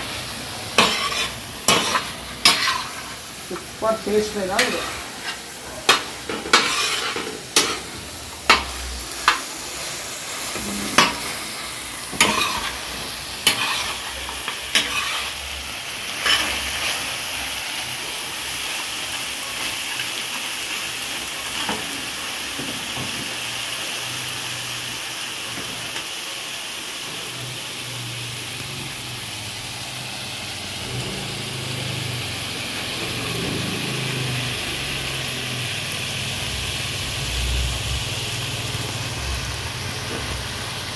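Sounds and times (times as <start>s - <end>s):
meat sizzling on a griddle: 0.0s - 40.9s
metal spatula scraping a pan: 0.7s - 9.5s, 10.4s - 11.5s, 12.1s - 15.4s, 16.1s - 17.1s.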